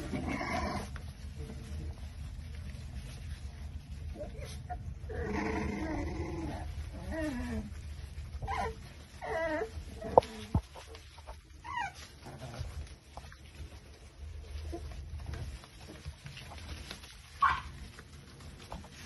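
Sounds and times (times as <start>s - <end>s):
puppies whining: 4.1s - 13.6s.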